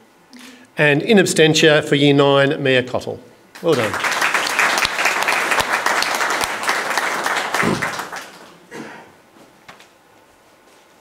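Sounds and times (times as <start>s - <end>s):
audience applauding: 3.6s - 8.7s.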